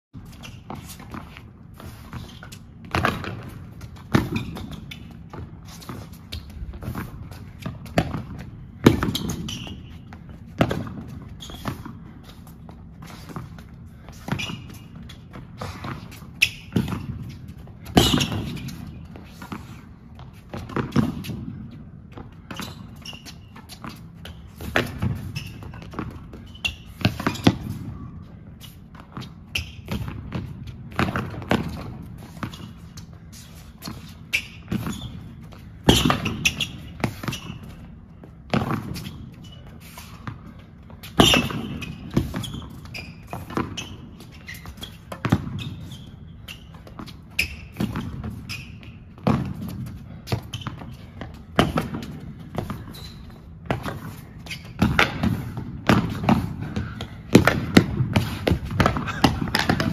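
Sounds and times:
rackets striking tennis ball: 0:00.3 - 0:27.9, 0:28.6 - 0:59.9
tennis ball bouncing: 0:15.9 - 0:19.5, 0:53.6 - 0:59.9.

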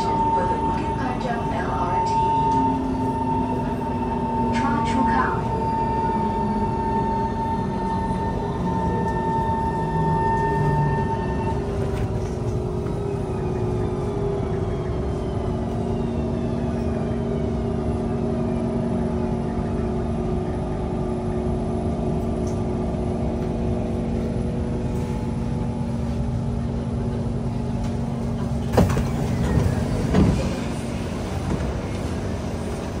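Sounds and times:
train motor whine slowing: 0:00.0 - 0:33.0
train doors sliding open: 0:27.1 - 0:33.0.

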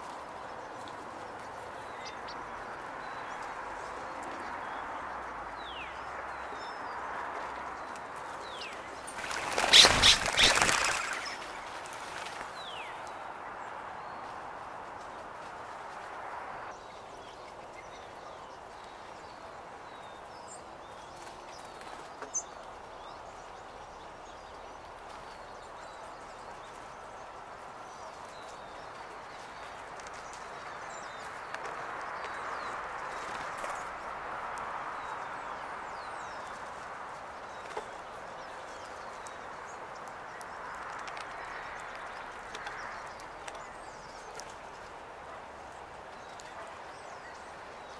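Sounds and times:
quail wingbeats whirring: 0:09.0 - 0:12.5.

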